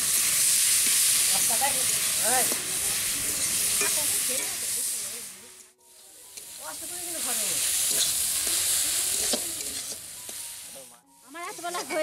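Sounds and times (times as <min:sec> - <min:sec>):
greens sizzling in iron pan: 0:00.0 - 0:12.0
metal spatula stirring: 0:06.3 - 0:10.9.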